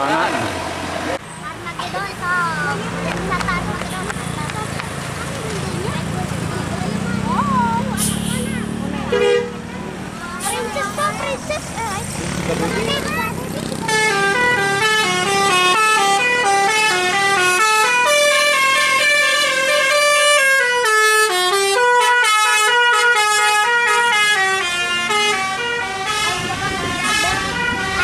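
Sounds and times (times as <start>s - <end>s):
bus musical horn tune: 8.0s - 9.8s, 13.8s - 28.0s.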